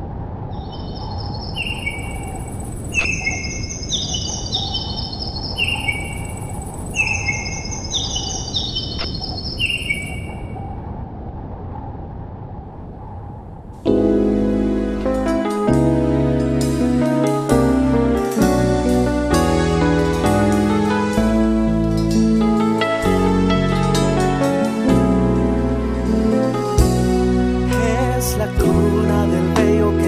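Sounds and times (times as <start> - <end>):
birds chirping: 0.5 - 10.8.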